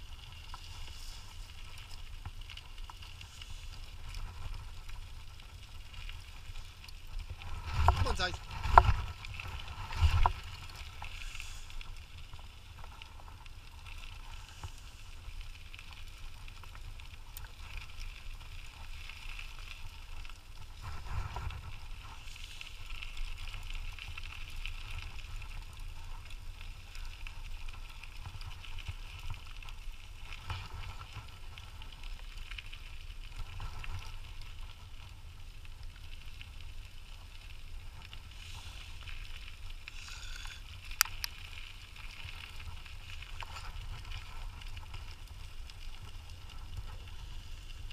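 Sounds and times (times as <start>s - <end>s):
wheels and wind hiss: 36.6s - 47.9s.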